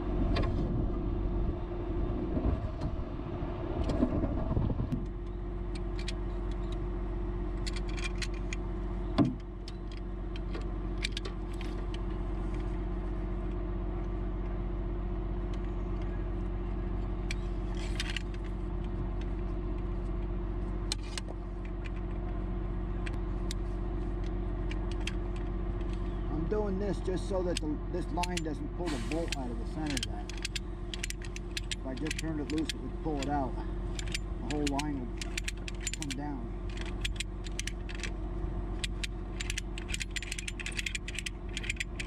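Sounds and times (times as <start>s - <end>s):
truck engine idling: 0.0s - 42.0s
metal clicks and clinks: 7.6s - 8.6s, 17.7s - 18.5s, 27.5s - 28.6s, 29.3s - 38.1s, 38.8s - 42.0s.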